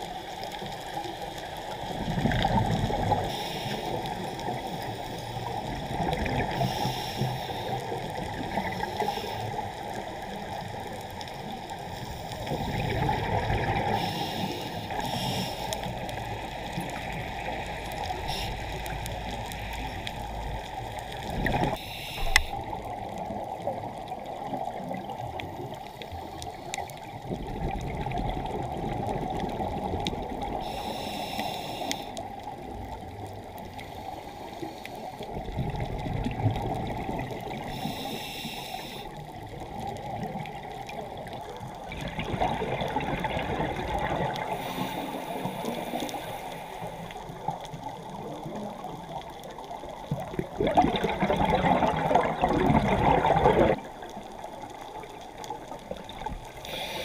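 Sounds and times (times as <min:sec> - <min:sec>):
bubbles rushing underwater: 0:01.9 - 0:03.3, 0:05.5 - 0:06.6, 0:12.4 - 0:14.0, 0:21.2 - 0:25.7, 0:27.2 - 0:30.6, 0:35.3 - 0:37.7, 0:39.6 - 0:44.6, 0:47.2 - 0:56.5.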